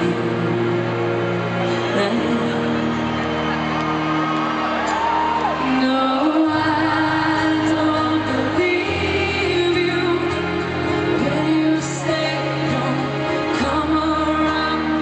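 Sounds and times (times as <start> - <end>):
woman singing: 0.0 - 0.8, 1.7 - 3.1, 5.6 - 15.0
acoustic guitars: 0.0 - 15.0.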